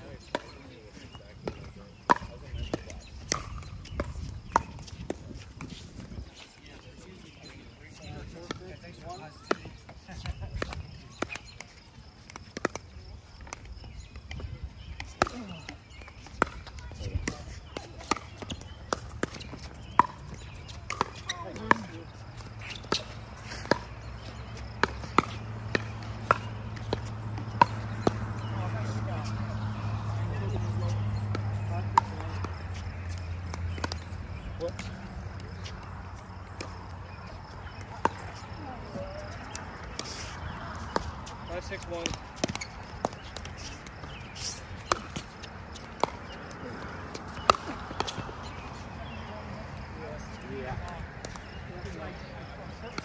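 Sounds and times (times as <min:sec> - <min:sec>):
ball bouncing on hard court: 0:01.4 - 0:05.9, 0:15.0 - 0:29.6, 0:30.3 - 0:44.2, 0:44.8 - 0:48.6
paddles hitting plastic ball: 0:15.0 - 0:28.6, 0:30.7 - 0:36.9, 0:39.5 - 0:48.6.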